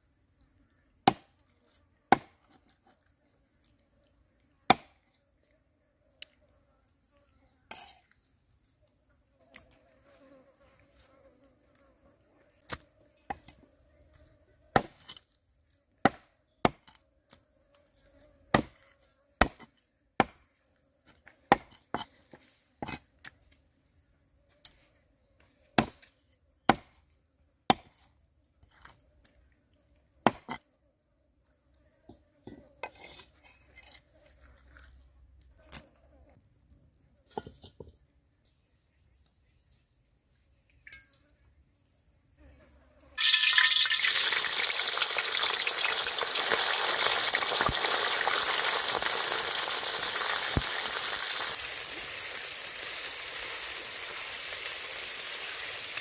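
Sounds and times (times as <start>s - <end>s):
cleaver chopping on wooden block: 4.7s - 5.0s, 16.0s - 16.9s, 18.5s - 18.8s, 26.7s - 27.0s, 30.2s - 30.6s
insect buzz: 41.1s - 56.0s.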